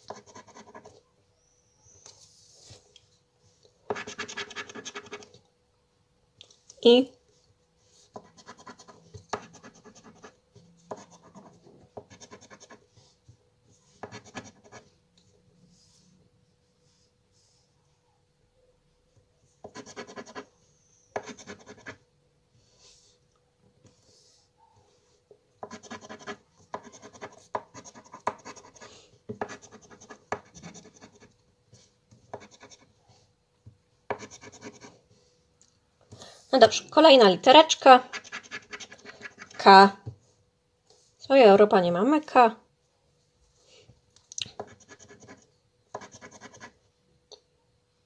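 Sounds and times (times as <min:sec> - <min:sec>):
scratch card being scratched: 0:03.9 - 0:05.3, 0:38.1 - 0:39.6, 0:44.6 - 0:45.4.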